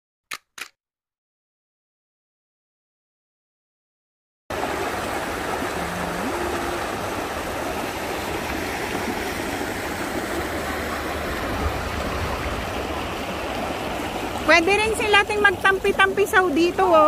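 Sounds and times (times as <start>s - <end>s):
river water flowing: 4.5s - 17.0s.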